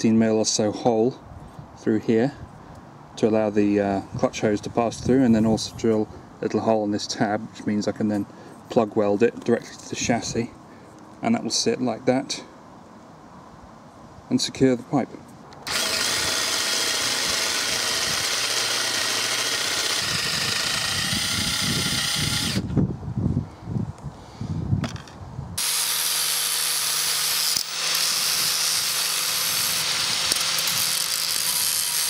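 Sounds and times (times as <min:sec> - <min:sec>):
electric drill boring steel: 0:15.6 - 0:22.7, 0:25.6 - 0:32.0.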